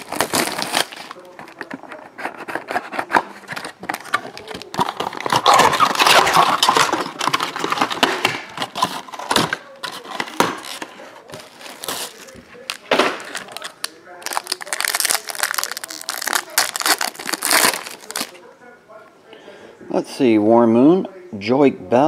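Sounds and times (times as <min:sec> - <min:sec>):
cardboard box being opened: 0:00.0 - 0:13.6
shrink wrap crinkling: 0:00.0 - 0:18.5
small tearing sounds: 0:09.7 - 0:18.4.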